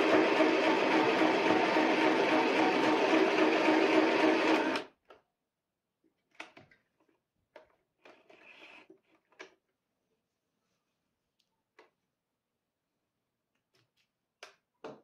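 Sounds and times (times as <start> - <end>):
sewing machine stitching: 0.0 - 4.9.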